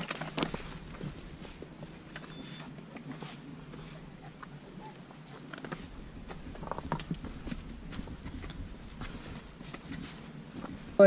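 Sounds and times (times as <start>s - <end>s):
footsteps on rocky gravel: 0.0s - 2.3s, 5.3s - 11.0s.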